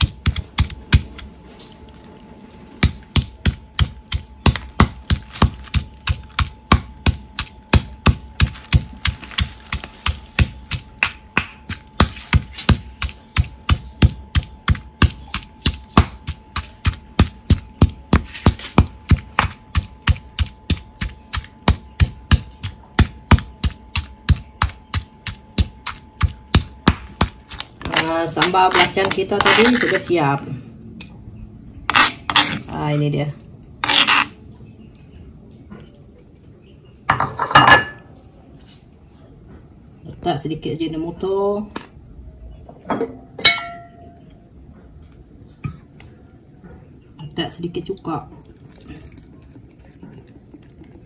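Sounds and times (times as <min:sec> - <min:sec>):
pestle pounding in stone mortar: 0:00.0 - 0:01.3, 0:02.8 - 0:29.8.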